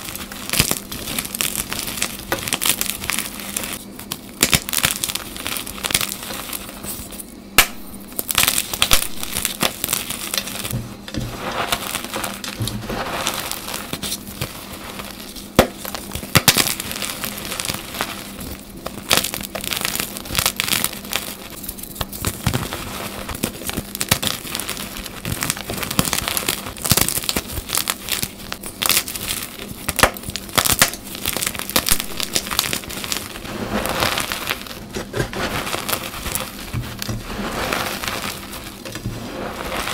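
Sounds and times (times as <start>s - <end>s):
chalk crunching and crackling: 0.0s - 39.9s
hands raking through chalk crumbs: 9.2s - 18.6s, 30.9s - 39.9s.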